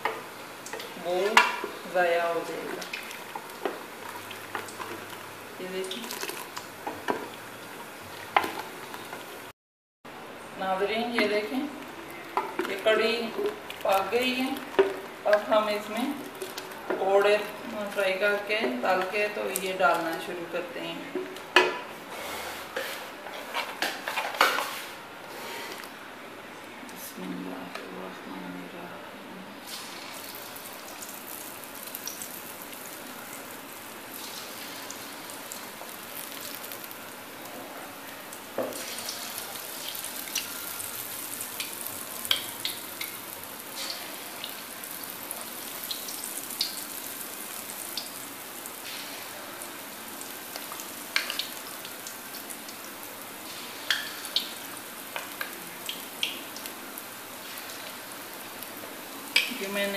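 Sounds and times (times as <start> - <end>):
frying oil popping and crackling: 0.0 - 9.5, 11.1 - 20.4, 29.7 - 59.9
batter sizzling in hot fat: 0.1 - 9.5, 29.6 - 59.9.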